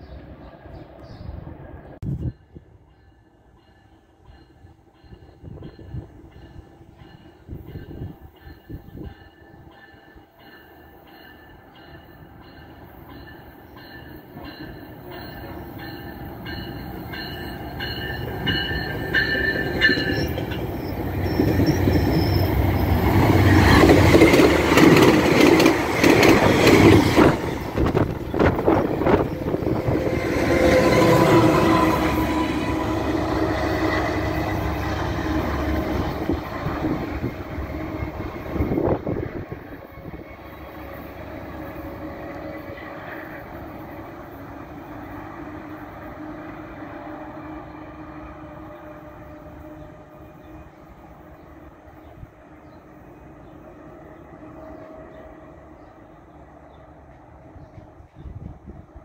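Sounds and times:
train cars clicking over rail joints: 0:14.3 - 0:29.6.

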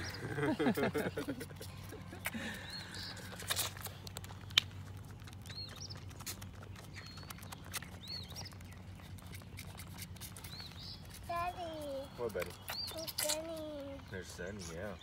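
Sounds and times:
goat kid sucking at bottle: 0:00.0 - 0:14.0
bird chirping: 0:00.0 - 0:15.0.

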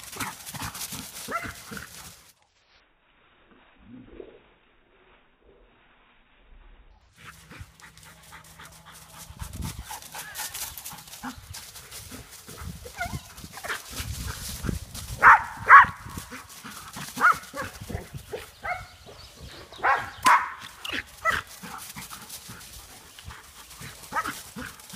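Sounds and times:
dogs yipping and barking: 0:00.0 - 0:02.0, 0:12.5 - 0:22.8, 0:23.4 - 0:24.9
leaves crunching and rustling: 0:00.0 - 0:02.8, 0:08.4 - 0:18.6.

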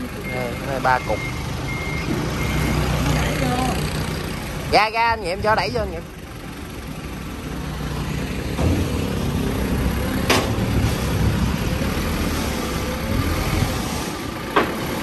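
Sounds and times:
forklift engine rumble: 0:00.0 - 0:15.0.

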